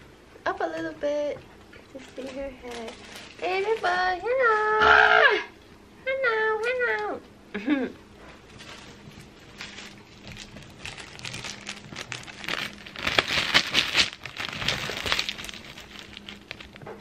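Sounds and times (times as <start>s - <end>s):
plastic bag of ice cubes crinkling: 1.9s - 4.7s, 8.5s - 17.0s.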